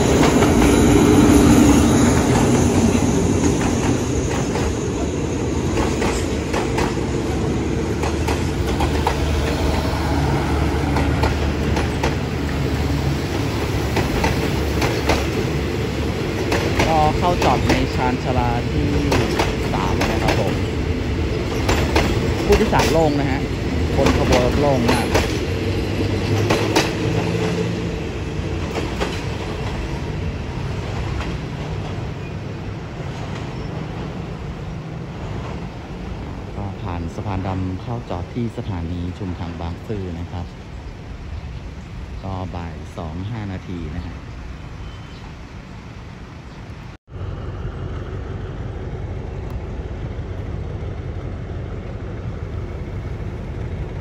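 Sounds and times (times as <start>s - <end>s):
train coaches rolling past: 0.0s - 54.0s
wheels clicking over rail joints: 5.6s - 9.9s, 10.8s - 12.6s, 16.2s - 27.6s, 28.4s - 30.0s.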